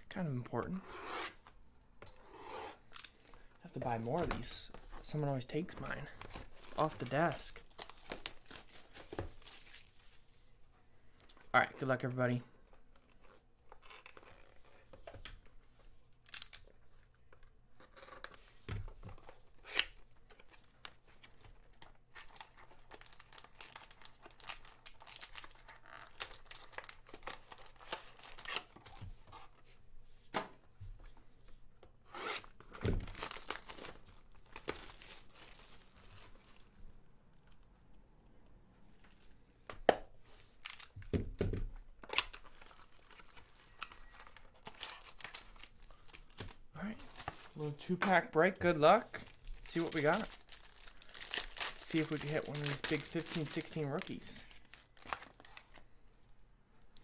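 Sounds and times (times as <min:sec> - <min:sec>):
plastic crinkling: 0:42.0 - 0:55.8.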